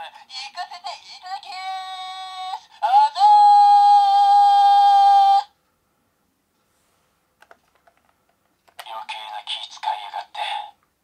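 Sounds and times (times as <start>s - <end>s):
toy speaker voice: 0.0s - 5.5s, 8.8s - 10.8s.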